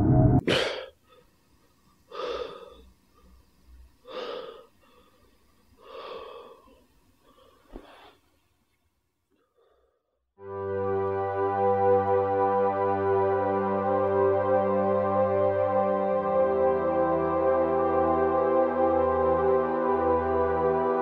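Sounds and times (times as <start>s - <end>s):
man breathing heavily: 0.4s - 1.4s, 2.0s - 8.2s
man gasping: 0.4s - 1.4s, 2.1s - 3.4s, 4.1s - 8.2s
music: 10.4s - 21.0s.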